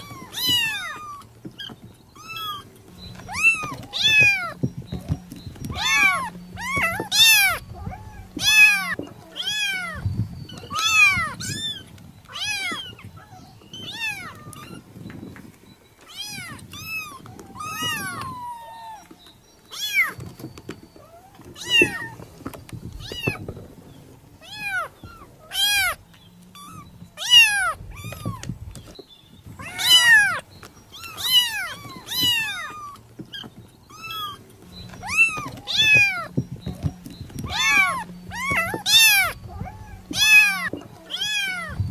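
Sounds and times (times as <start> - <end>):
kitten meowing: 0.0 - 4.6, 5.7 - 14.8, 16.1 - 19.1, 21.5 - 22.2, 26.6 - 28.5, 29.6 - 34.4, 35.0 - 36.4, 37.4 - 41.8.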